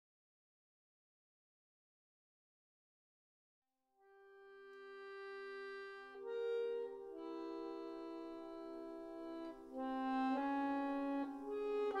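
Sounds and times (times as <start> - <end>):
faint sustained chord: 4.1 - 12.0.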